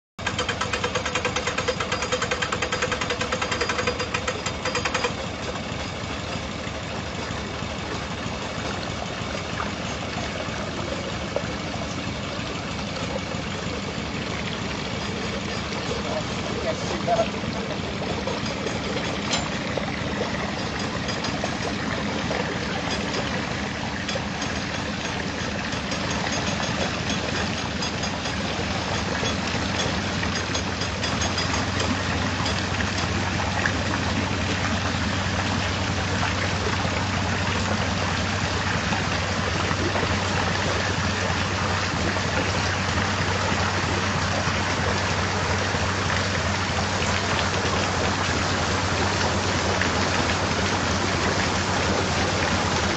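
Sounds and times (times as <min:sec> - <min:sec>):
boat diesel engine humming: 0:00.2 - 0:52.9.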